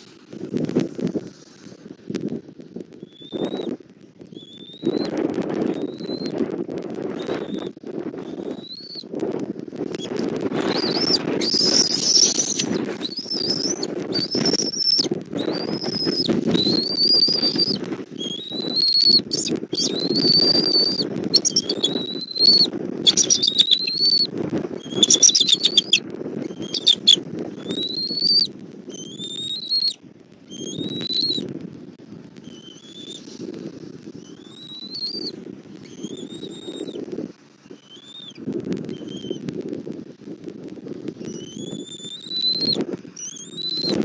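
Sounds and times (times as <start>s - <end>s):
eagle rapid chittering: 2.7s - 31.6s, 32.3s - 39.5s, 41.2s - 44.0s
eagle whistled calls: 3.0s - 3.7s, 4.3s - 6.4s, 7.1s - 9.1s, 9.9s - 31.4s, 32.4s - 37.0s, 37.6s - 39.4s, 41.2s - 44.0s
wing movement: 9.7s - 29.3s.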